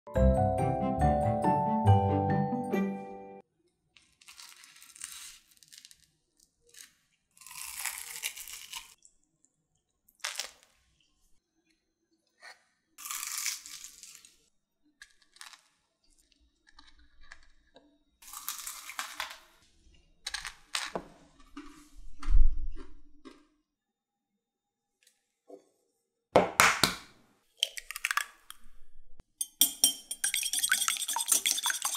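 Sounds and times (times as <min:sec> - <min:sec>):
fried coating crunching: 0:04.0 - 0:09.0, 0:13.0 - 0:14.4, 0:18.2 - 0:19.5.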